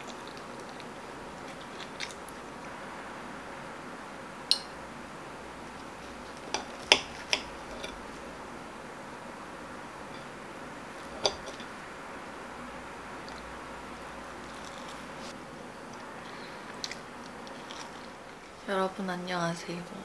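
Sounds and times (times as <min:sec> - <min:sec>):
steady faint hiss: 0:00.0 - 0:20.0
cutlery clinking on plate: 0:11.2 - 0:11.7.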